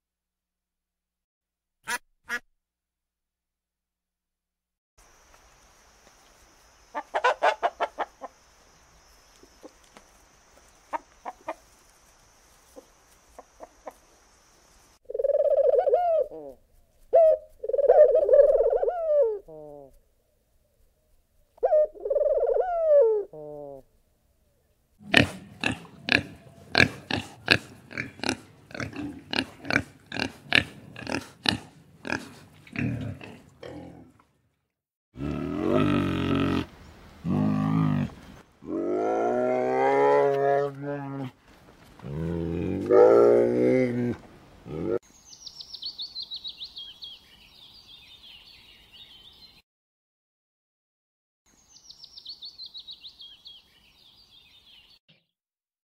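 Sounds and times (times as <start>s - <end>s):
chickens clucking: 7.0s - 8.4s, 10.9s - 11.7s, 12.8s - 14.1s
pigeons short calls: 15.1s - 19.9s
bear grunting: 25.0s - 34.2s, 35.2s - 41.4s, 42.0s - 45.0s.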